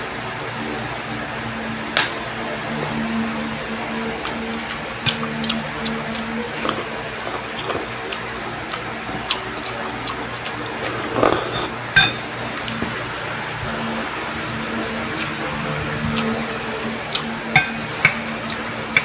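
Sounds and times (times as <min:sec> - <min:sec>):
low hum: 0:00.0 - 0:09.1, 0:11.7 - 0:19.0
chewing and slurping noodles: 0:04.2 - 0:11.9
spoon clinking on ceramic bowl: 0:12.0 - 0:12.2, 0:17.6 - 0:18.4.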